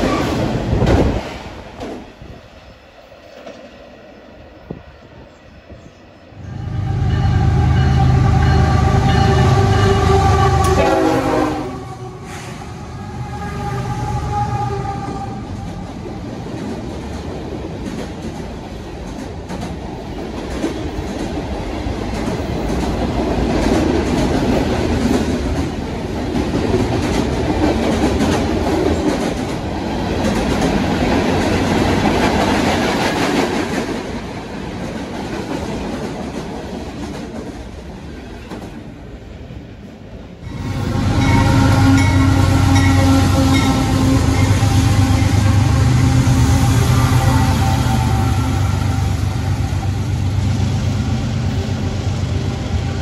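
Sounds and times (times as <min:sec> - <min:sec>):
freight train wheels rumbling: 0:00.0 - 0:53.0
locomotive horn: 0:06.4 - 0:15.7, 0:40.5 - 0:50.4.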